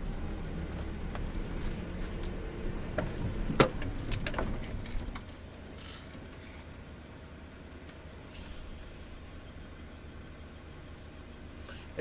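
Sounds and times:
car engine and road rumble: 0.0 - 12.0
car bumping knocks: 2.9 - 5.3.

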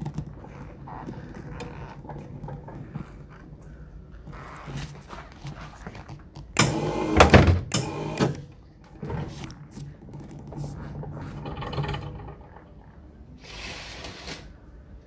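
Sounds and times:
soft rustle: 0.0 - 6.5.

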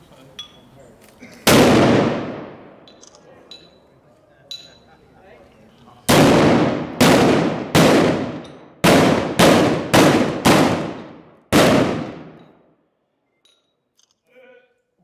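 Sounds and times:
cannon bangs with echo: 1.4 - 2.8, 6.1 - 12.4.

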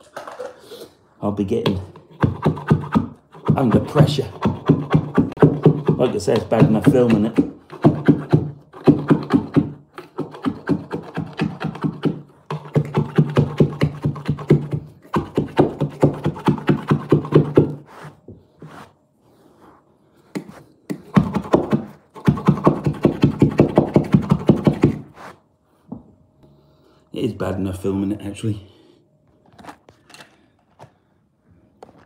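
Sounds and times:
hand tool rasping carpet edge: 2.0 - 19.0, 20.3 - 25.4.

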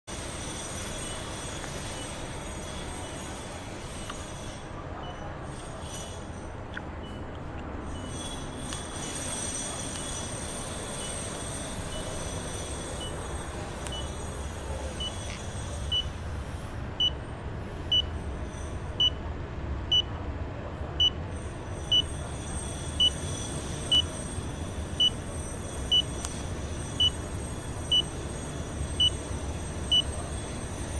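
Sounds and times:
dosimeter short high beeps: 21.9 - 22.2, 23.0 - 23.2, 23.9 - 24.1, 25.0 - 25.2, 25.8 - 26.4, 27.0 - 27.2, 27.9 - 28.2, 29.9 - 30.1.

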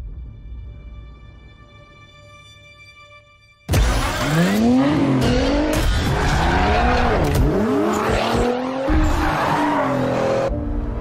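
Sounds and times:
sports car engine revving: 3.8 - 10.5.

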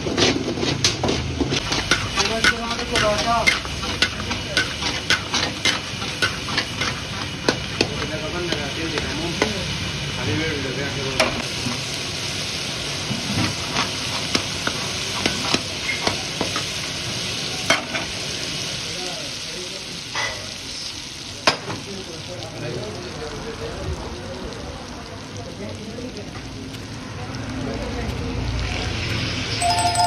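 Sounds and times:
metal spatula scraping a wok: 0.0 - 8.1
meat sizzling in a wok: 0.0 - 30.0
spatula clacking against wok: 0.2 - 9.6.

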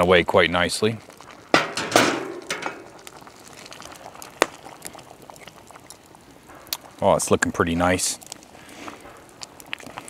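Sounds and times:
stew bubbling and popping: 0.0 - 10.0.

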